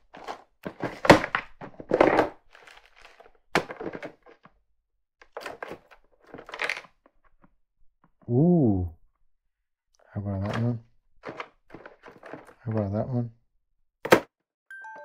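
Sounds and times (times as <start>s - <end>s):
straps clacking and rustling: 0.0s - 4.5s, 5.2s - 7.4s, 10.5s - 12.8s
plastic drawer thunks: 0.6s - 2.4s, 14.0s - 14.3s.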